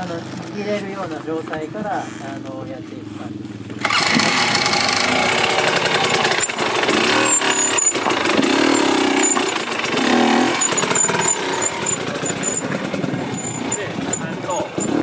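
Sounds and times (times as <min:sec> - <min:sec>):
dirt bike engine revving: 0:03.2 - 0:15.0.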